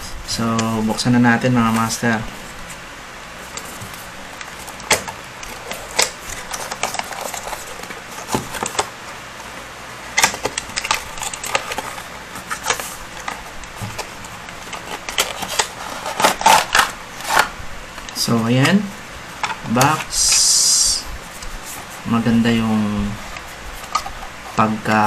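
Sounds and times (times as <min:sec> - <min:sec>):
cardboard box being opened: 0:10.3 - 0:17.6.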